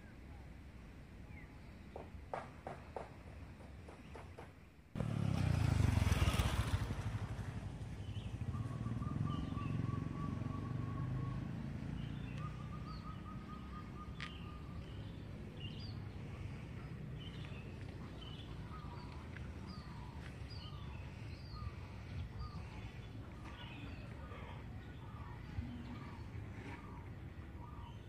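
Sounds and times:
distant street traffic rumble: 0:00.0 - 0:28.0
small birds chirping: 0:01.2 - 0:28.0.

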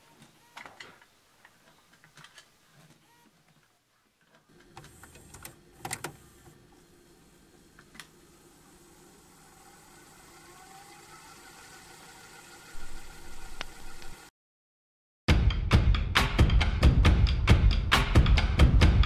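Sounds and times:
tape deck clunks: 0:04.5 - 0:06.6
tape deck mechanism humming: 0:04.5 - 0:14.3.

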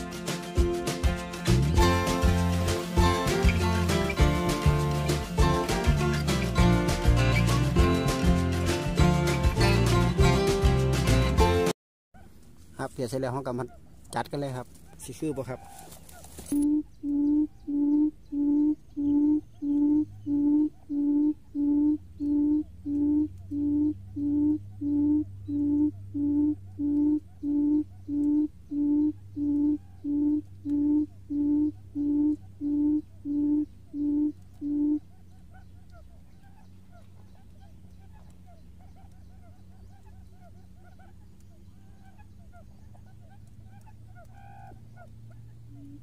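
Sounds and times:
bird hooting: 0:13.4 - 0:46.0.

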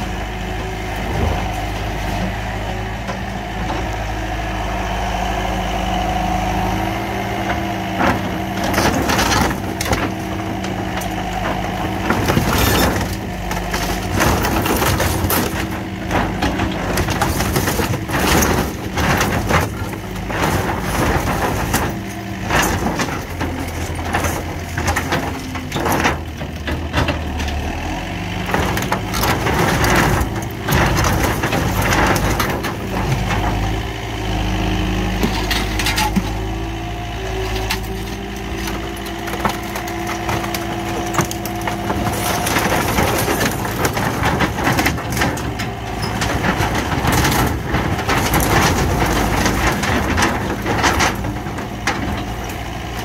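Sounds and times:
diesel engine running: 0:00.0 - 0:53.0
wood cracking and splintering: 0:00.0 - 0:53.0
sheet metal crumpling: 0:07.8 - 0:33.9, 0:37.5 - 0:53.0.

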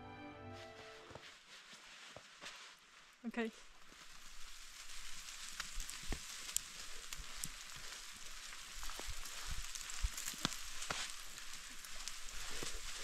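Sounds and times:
snow pattering hiss: 0:00.4 - 0:13.0
snow clumps thumping: 0:03.8 - 0:13.0.

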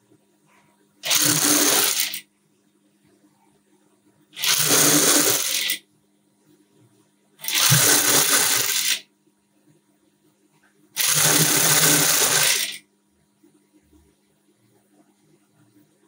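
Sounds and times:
low steady hum: 0:00.0 - 0:12.2, 0:12.8 - 0:16.0
sewing machine stitching: 0:01.0 - 0:02.2, 0:04.4 - 0:05.8, 0:07.4 - 0:09.0, 0:11.0 - 0:12.8.

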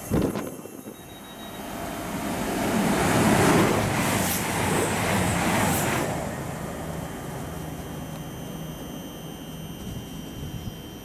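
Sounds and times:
train passing at speed: 0:01.2 - 0:08.1.

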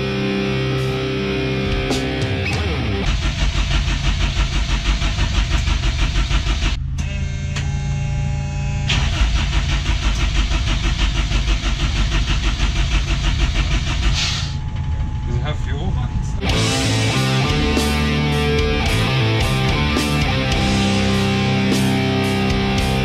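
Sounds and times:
engine cranking without firing: 0:02.8 - 0:07.0, 0:08.9 - 0:15.2.

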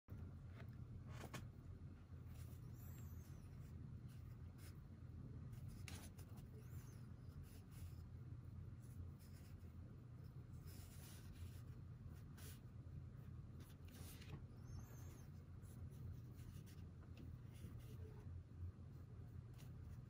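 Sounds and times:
low room hum: 0:00.1 - 0:20.0
brush pen strokes on paper: 0:08.8 - 0:12.8.

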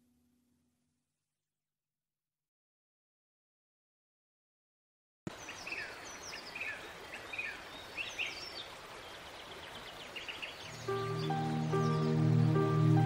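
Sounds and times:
birds chirping: 0:05.3 - 0:13.0
soft new-age music: 0:10.6 - 0:13.0.

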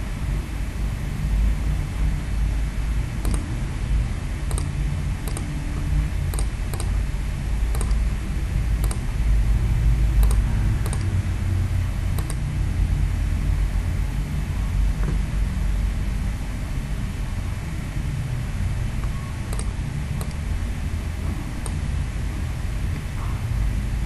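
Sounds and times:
low background rumble: 0:00.0 - 0:24.0
computer mouse clicks: 0:03.2 - 0:03.5, 0:04.5 - 0:07.0, 0:07.7 - 0:08.0, 0:08.8 - 0:09.1, 0:10.2 - 0:11.2, 0:12.1 - 0:12.5, 0:19.0 - 0:20.4, 0:21.6 - 0:21.9.

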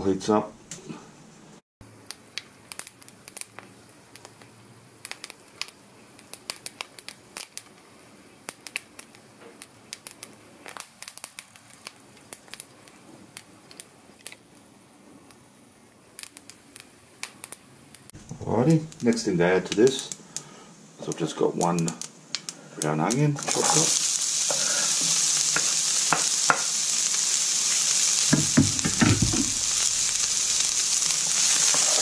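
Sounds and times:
seeds crackling in hot oil: 0:01.8 - 0:32.0
faint oil hiss: 0:18.4 - 0:32.0.

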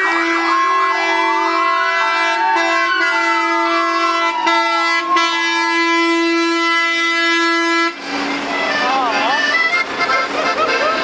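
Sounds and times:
siren wailing: 0:00.0 - 0:07.3
fire engine horns blaring: 0:00.0 - 0:11.0.

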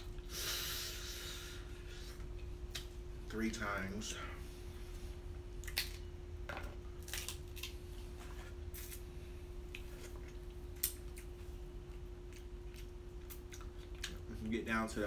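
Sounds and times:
low hum: 0:00.0 - 0:15.0
crab shells cracking: 0:07.0 - 0:07.8.

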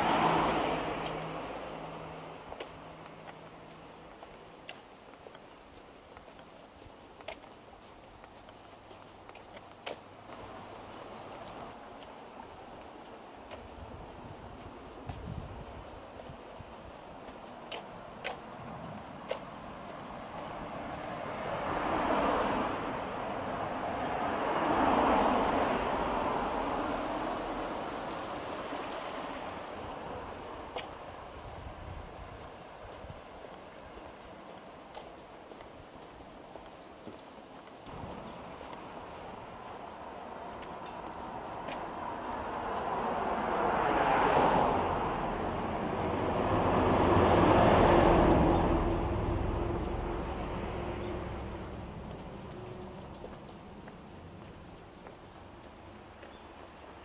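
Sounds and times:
vehicle passing by: 0:00.0 - 0:04.6, 0:17.7 - 0:34.5, 0:37.8 - 0:57.0
bird chirping: 0:38.0 - 0:38.5, 0:50.9 - 0:53.7.

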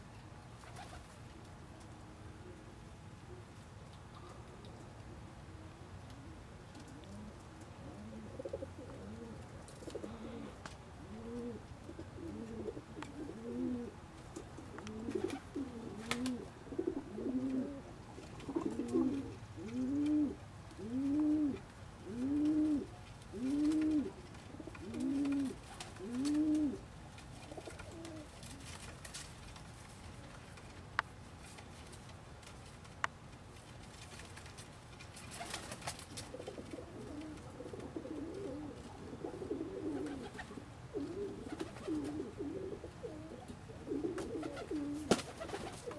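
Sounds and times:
pigeon cooing: 0:06.2 - 0:26.8, 0:36.3 - 0:45.9.

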